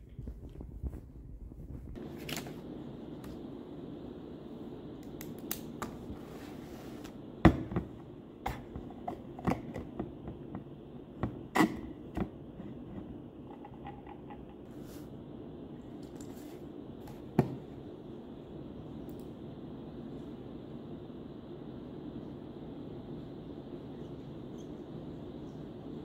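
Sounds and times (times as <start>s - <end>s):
low room hum: 0.0s - 26.0s.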